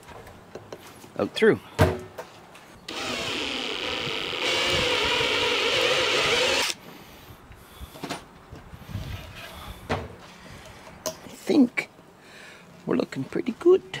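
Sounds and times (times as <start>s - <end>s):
cordless drill boring through plastic: 2.9s - 6.8s.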